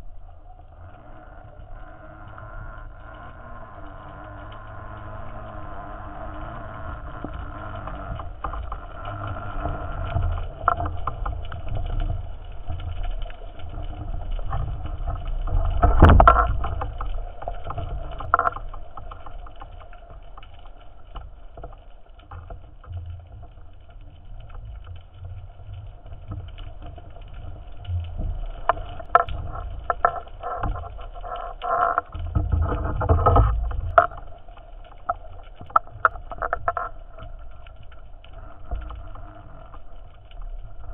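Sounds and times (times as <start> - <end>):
underwater rumble and hum: 0.0 - 40.9.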